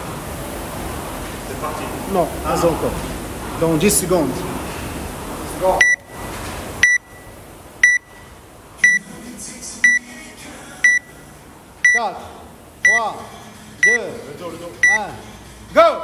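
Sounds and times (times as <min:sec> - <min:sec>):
electronic timer beeps: 0:05.8 - 0:06.2, 0:06.8 - 0:09.0, 0:09.8 - 0:10.0, 0:10.8 - 0:11.1, 0:11.8 - 0:12.0, 0:13.8 - 0:14.0, 0:14.8 - 0:15.1.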